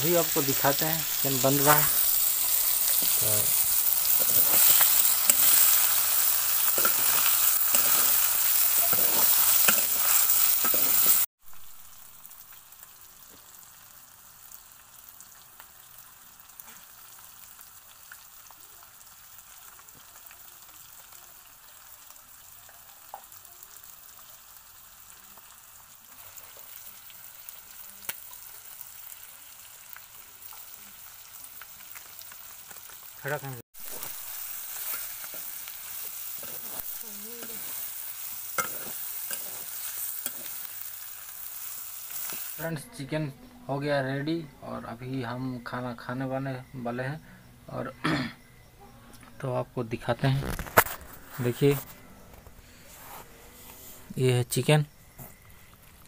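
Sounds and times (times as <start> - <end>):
chicken sizzling in oil: 0.0 - 43.1.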